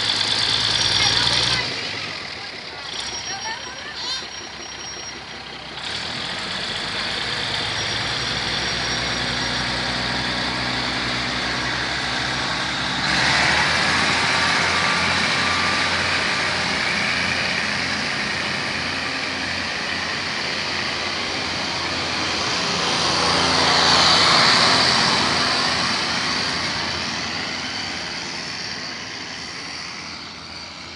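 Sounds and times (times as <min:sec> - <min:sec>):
diesel train pulling away: 0:00.0 - 0:30.9.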